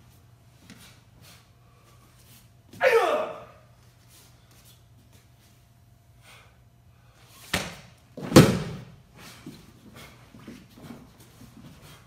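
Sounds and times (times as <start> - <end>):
sharp slap: 7.5 - 8.9
body thudding onto a mat: 7.6 - 9.0.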